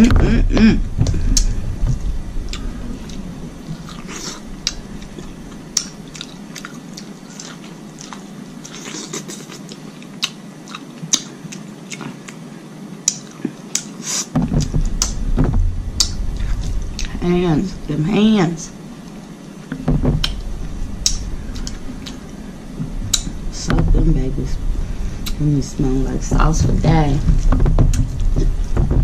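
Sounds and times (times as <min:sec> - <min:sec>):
chewing and wet mouth sounds: 0:02.5 - 0:14.3.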